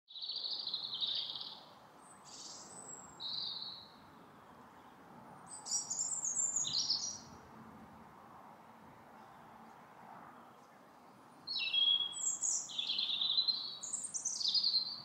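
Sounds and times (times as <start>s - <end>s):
birds singing and calling: 0.1s - 4.0s, 5.5s - 7.3s, 11.5s - 15.0s
faint steady background noise: 0.1s - 15.0s.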